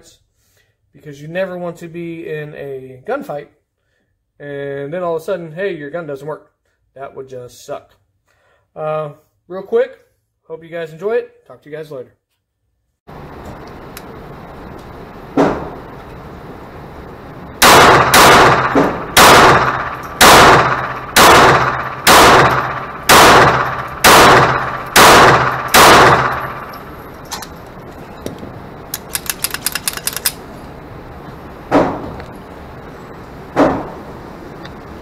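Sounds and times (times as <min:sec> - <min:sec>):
pistol shots reverberating indoors: 0:17.6 - 0:27.4.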